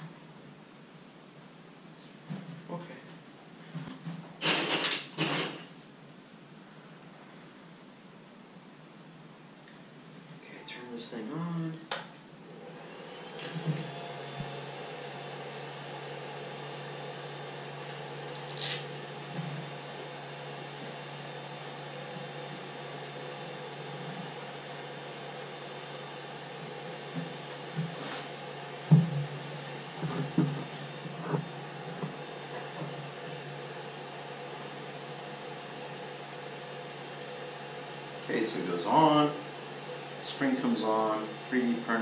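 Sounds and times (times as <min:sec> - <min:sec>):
cooling fans humming: 0:00.0 - 0:42.0
faint steady tone: 0:06.5 - 0:11.8
handling knocks and thumps: 0:28.9 - 0:29.4, 0:30.0 - 0:33.0.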